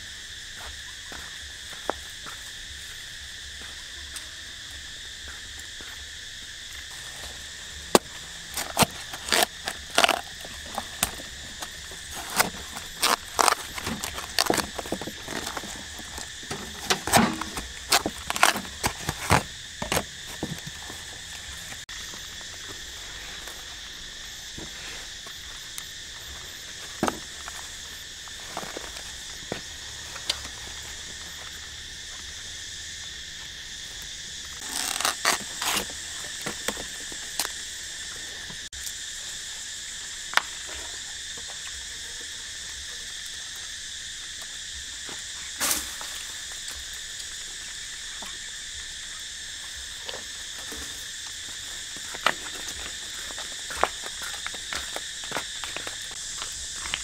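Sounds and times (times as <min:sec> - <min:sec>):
insects droning: 0:00.0 - 0:57.0
knife cutting watermelon: 0:08.0 - 0:20.8, 0:34.6 - 0:36.0.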